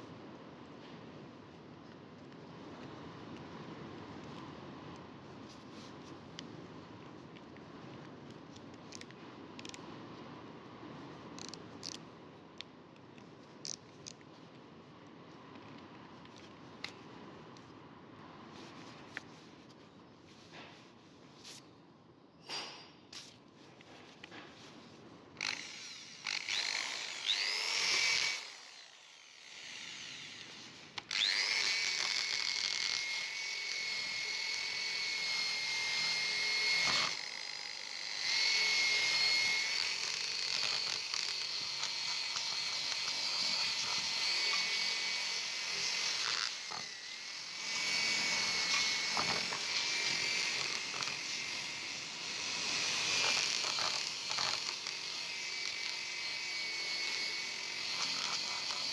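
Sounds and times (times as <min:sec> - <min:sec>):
drill high whine: 0:25.4 - 0:58.9.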